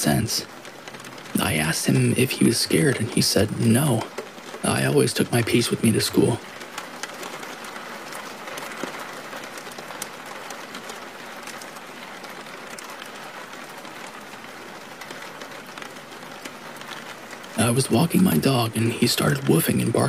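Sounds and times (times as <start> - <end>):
steady rain hiss: 0.0 - 20.0.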